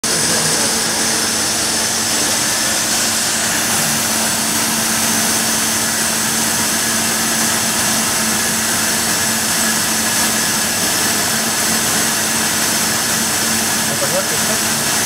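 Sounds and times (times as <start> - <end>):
machining centre running: 0.0 - 15.0.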